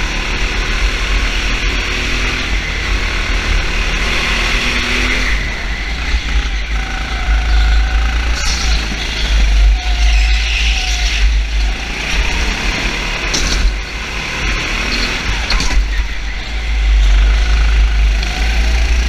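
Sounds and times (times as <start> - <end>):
vehicle engine running: 0.0 - 19.0
heavy low rumble: 5.3 - 19.0.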